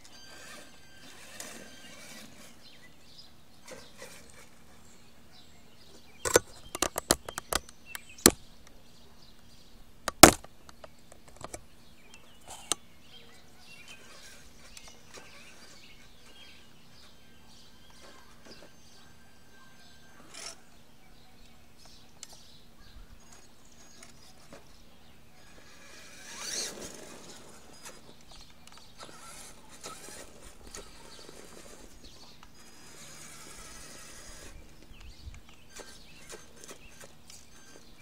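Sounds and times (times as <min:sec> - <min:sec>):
rc truck driving on asphalt: 0:00.0 - 0:05.1, 0:13.6 - 0:19.2, 0:19.8 - 0:20.8, 0:23.2 - 0:38.0.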